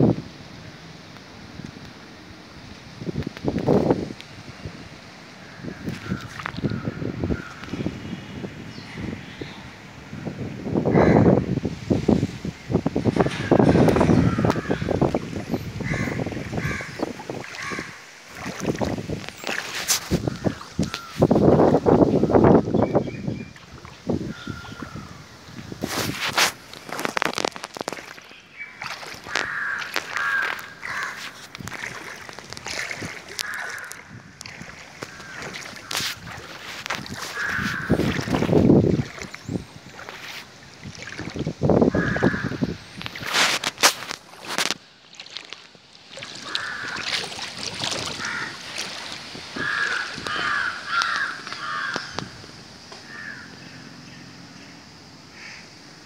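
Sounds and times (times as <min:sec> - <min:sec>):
crows cawing: 0:05.4 - 0:07.8, 0:10.9 - 0:11.4, 0:13.2 - 0:15.2, 0:15.8 - 0:18.0, 0:20.2 - 0:21.3, 0:24.3 - 0:25.2, 0:28.6 - 0:32.0, 0:33.3 - 0:34.3, 0:35.0 - 0:38.6, 0:41.9 - 0:42.8, 0:46.3 - 0:47.4, 0:48.1 - 0:48.9, 0:49.5 - 0:52.4, 0:53.0 - 0:53.8, 0:55.3 - 0:55.7.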